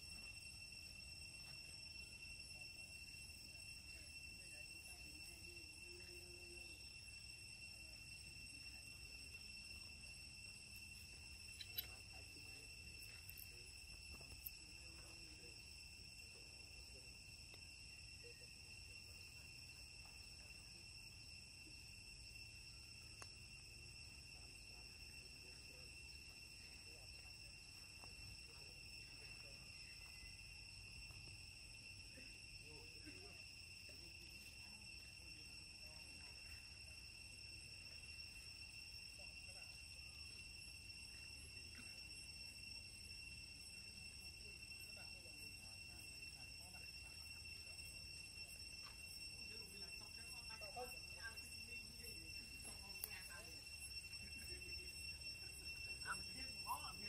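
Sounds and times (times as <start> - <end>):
high-pitched insect drone: 0.0 - 57.0
faint clicks: 11.5 - 12.0.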